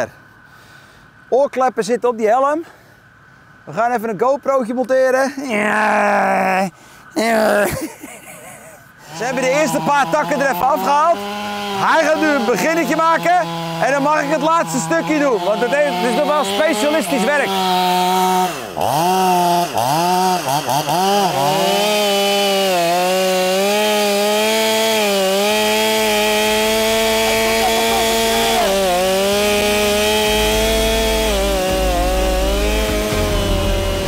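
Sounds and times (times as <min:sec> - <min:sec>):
chainsaw cutting into tree trunk: 0:09.1 - 0:34.0.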